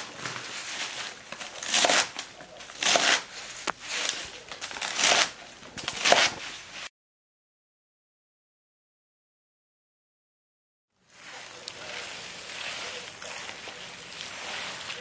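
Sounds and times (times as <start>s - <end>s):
knife slicing on cutting board: 1.6s - 3.3s, 4.8s - 6.5s.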